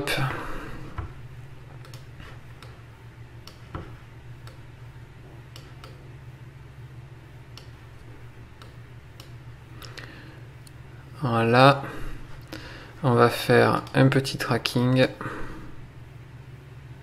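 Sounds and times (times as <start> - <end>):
steady low hum: 0.0 - 17.0
computer mouse clicks: 1.8 - 2.8, 3.4 - 4.7, 5.5 - 6.0, 8.6 - 10.8.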